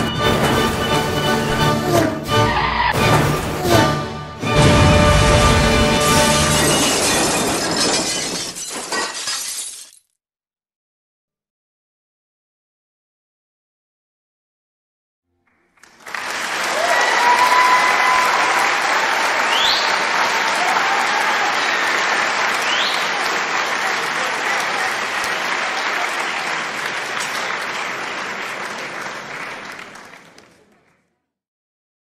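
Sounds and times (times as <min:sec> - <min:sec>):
audience applauding: 0:15.5 - 0:31.1.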